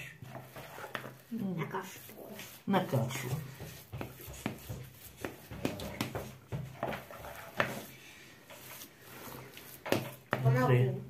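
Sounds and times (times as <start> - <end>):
metal spoon scraping plastic bowl: 0.0 - 10.7.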